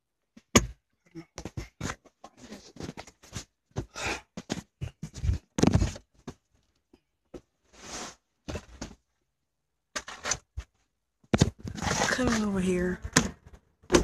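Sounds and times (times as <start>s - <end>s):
handling rustles and bumps: 0.4s - 7.5s.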